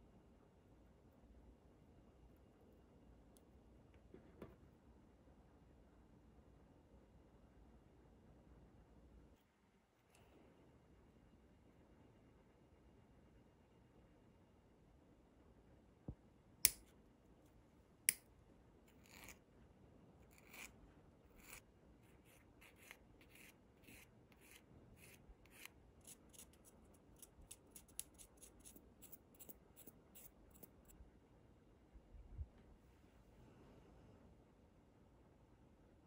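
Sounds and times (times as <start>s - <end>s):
file scraping metal: 20.3s - 20.7s, 21.3s - 30.7s.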